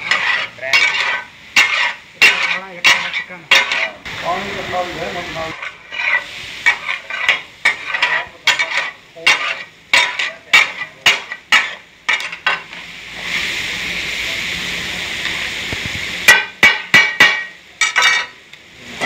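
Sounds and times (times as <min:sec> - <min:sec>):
metal spatulas striking griddle: 0:00.0 - 0:04.0, 0:05.5 - 0:12.8, 0:16.3 - 0:18.4
frying sizzle: 0:00.0 - 0:19.0.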